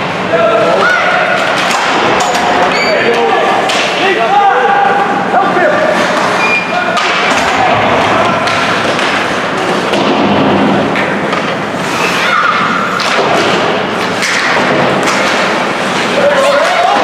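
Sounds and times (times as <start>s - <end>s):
players shouting: 0.3s - 9.9s, 12.0s - 13.1s, 14.9s - 17.0s
sticks and skates on ice: 5.8s - 17.0s
puck thudding against boards: 13.0s - 17.0s.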